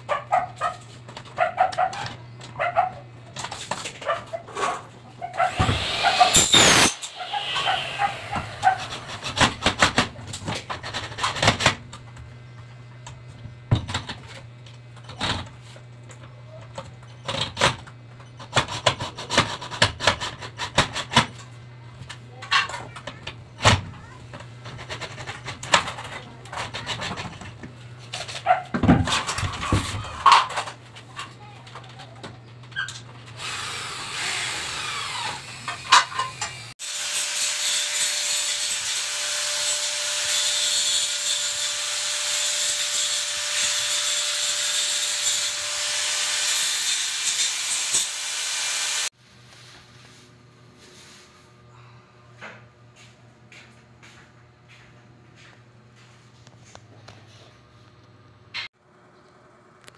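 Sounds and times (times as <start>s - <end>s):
loud rasping scrape: 5.4s - 9.4s.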